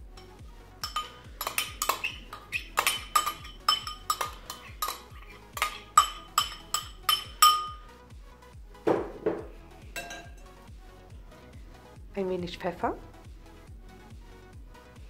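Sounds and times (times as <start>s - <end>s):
metal spoon clinking on ceramic bowl: 0.0s - 7.8s, 10.0s - 10.4s.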